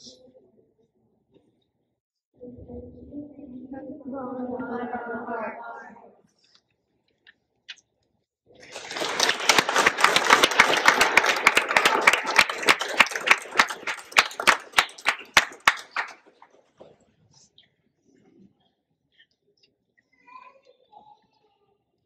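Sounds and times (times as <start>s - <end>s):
audience applause: 8.6s - 16.4s.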